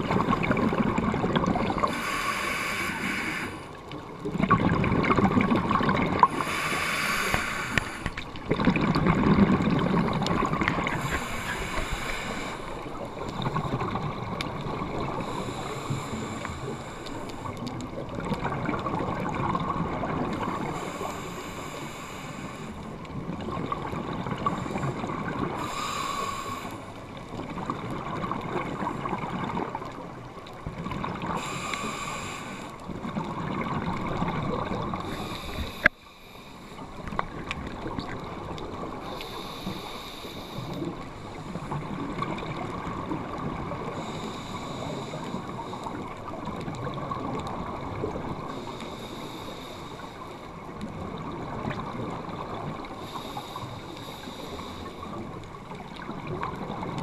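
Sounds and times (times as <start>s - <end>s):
bubbling exhaled air: 0.0s - 29.9s
scuba regulator breathing hiss: 1.8s - 3.8s, 6.2s - 8.2s, 10.9s - 13.3s, 15.2s - 17.6s, 20.6s - 22.8s, 25.5s - 27.0s, 31.4s - 32.8s, 35.0s - 36.9s, 39.0s - 41.8s, 43.9s - 46.3s, 48.5s - 50.5s, 52.9s - 55.2s.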